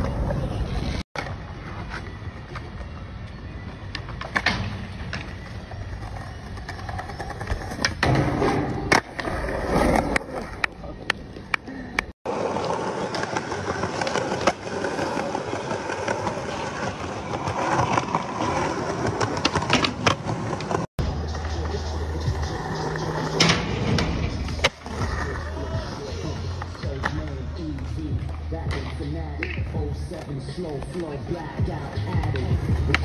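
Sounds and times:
skateboard wheels rolling on stone: 0.0 - 20.9.

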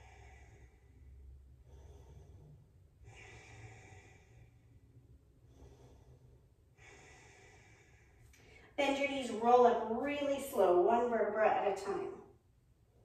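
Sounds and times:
woman breathing slowly: 0.0 - 8.8.

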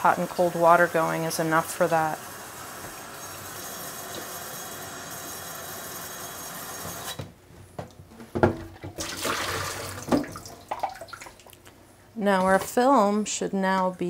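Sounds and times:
tap water rushing through hose: 0.2 - 7.3, 8.8 - 11.6
hollow knocks from tank: 8.2 - 9.0.

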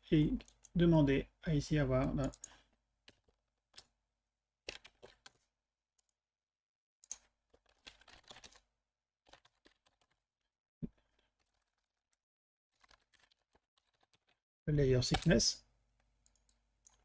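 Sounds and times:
keyboard typing: 4.7 - 5.4, 7.0 - 8.6, 9.2 - 10.2.

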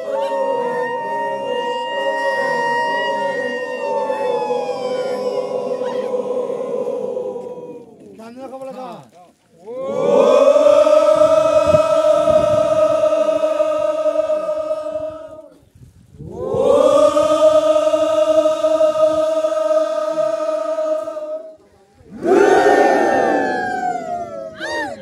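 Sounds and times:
men shouting together: 0.0 - 7.8, 22.1 - 25.0
men chanting in unison: 0.0 - 8.2, 9.7 - 15.5, 16.2 - 23.7.

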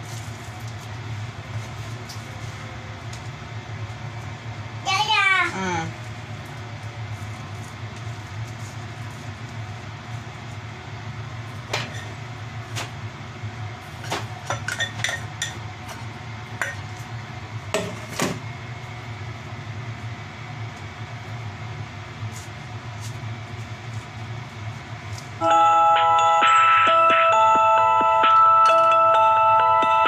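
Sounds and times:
utensils and dishes clinking: 14.4 - 15.6
chiming mallet percussion music: 25.4 - 30.0.

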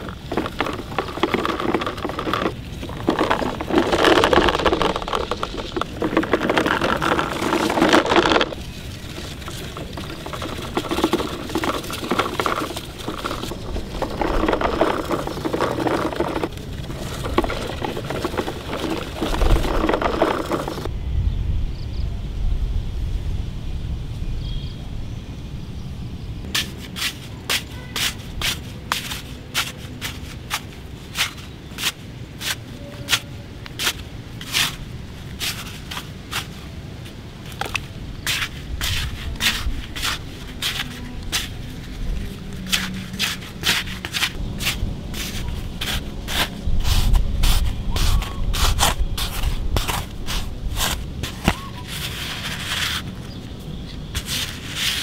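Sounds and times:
toy shovels scraping dirt: 0.0 - 20.9, 26.5 - 55.0.

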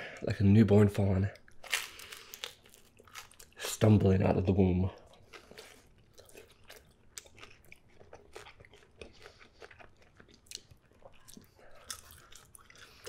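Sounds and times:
crust crunching: 1.5 - 3.6
chewing mouth sounds: 5.0 - 13.0.

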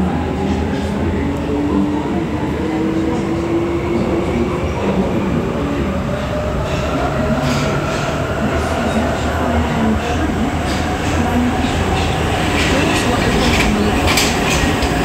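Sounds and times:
metro train rumbling: 0.0 - 15.0.

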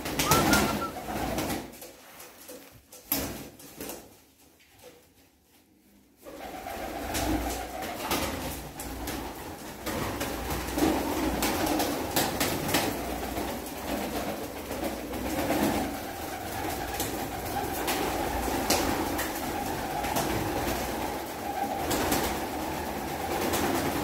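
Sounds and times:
pigeons cooing: 0.0 - 1.4
wings clapping and flapping: 0.0 - 5.0, 6.2 - 24.0.

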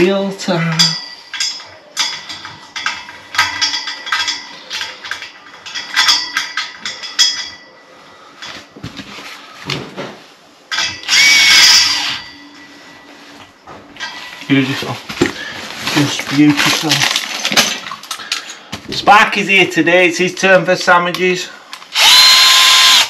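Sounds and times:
metal parts clinking: 0.7 - 7.8, 16.3 - 18.6
cordless drill whining: 11.0 - 12.2, 21.9 - 23.0.

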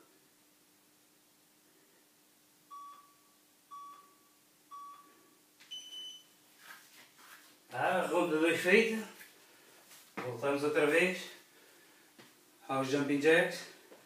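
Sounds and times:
long high-pitched beep: 5.7 - 6.3.

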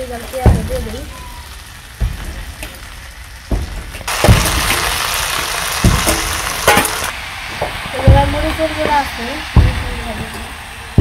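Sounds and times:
food sizzling in a pot: 0.0 - 11.0.

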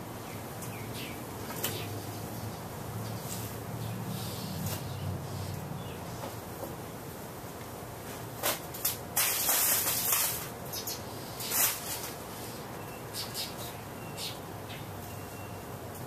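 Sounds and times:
ceiling fan humming: 0.0 - 16.0.

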